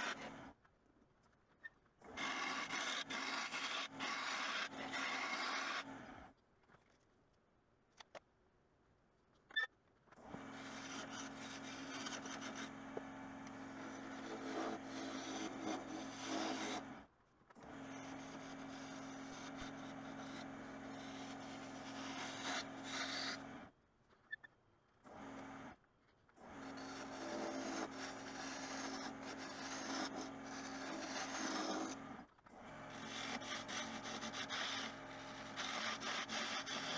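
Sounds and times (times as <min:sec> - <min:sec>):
turning tool cutting wood: 0:00.0 - 0:00.4, 0:02.1 - 0:06.2, 0:10.3 - 0:17.0, 0:17.6 - 0:23.7, 0:26.4 - 0:36.9
wood lathe motor hum: 0:02.1 - 0:06.2, 0:10.3 - 0:17.0, 0:17.6 - 0:23.7, 0:26.4 - 0:36.9.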